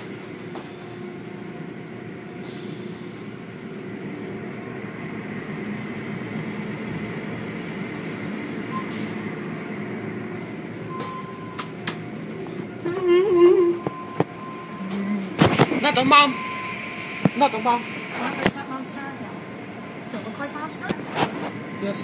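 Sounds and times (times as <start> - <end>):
car wash machinery rumbling: 0.0 - 22.0
car wash hiss: 15.5 - 19.4.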